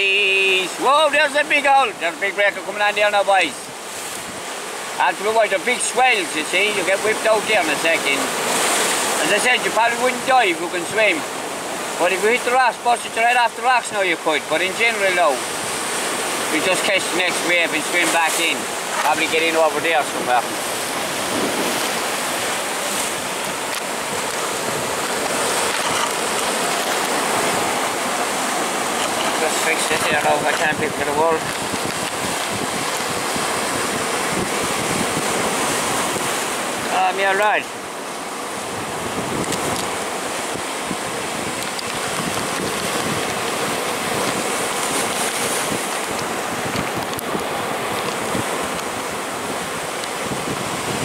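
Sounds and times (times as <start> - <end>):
surf washing over rocks: 0.0 - 51.0.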